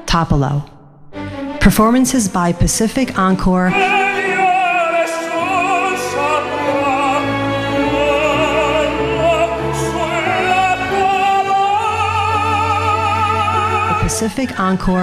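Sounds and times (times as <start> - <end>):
operatic tenor singing: 1.8 - 15.0
instrumental accompaniment: 3.6 - 14.7.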